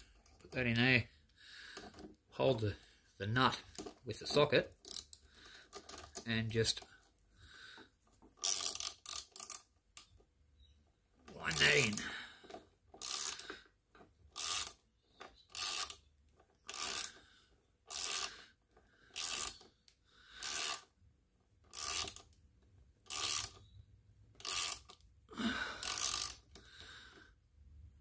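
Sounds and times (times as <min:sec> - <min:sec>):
ratchet spanner clicking: 0:04.8 - 0:06.1, 0:08.4 - 0:10.1, 0:13.0 - 0:13.6, 0:14.3 - 0:14.8, 0:15.5 - 0:16.0, 0:16.7 - 0:17.2, 0:17.9 - 0:18.4, 0:19.1 - 0:19.7, 0:20.4 - 0:20.9, 0:21.7 - 0:22.3, 0:23.0 - 0:23.6, 0:24.4 - 0:25.0, 0:25.8 - 0:26.7.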